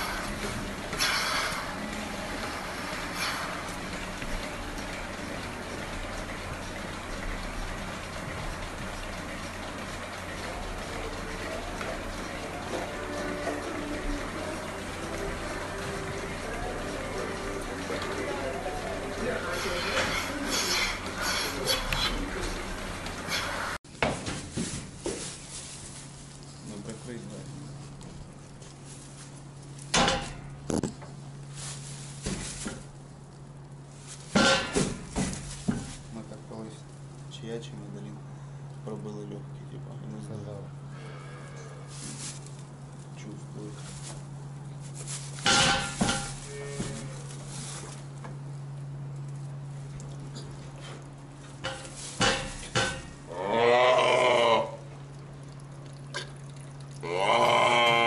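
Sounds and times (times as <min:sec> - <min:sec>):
steady low hum: 0:00.0 - 0:58.0
cow mooing: 0:46.5 - 0:47.2, 0:53.3 - 0:54.9, 0:57.0 - 0:58.0
knocks and clatters: 0:51.5 - 0:53.2.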